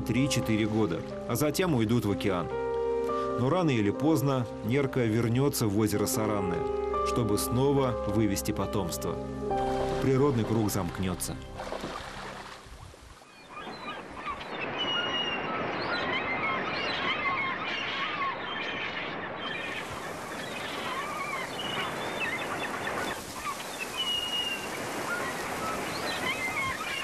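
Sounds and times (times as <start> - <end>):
gulls calling: 0.0 - 27.0
surf rushing: 9.5 - 27.0.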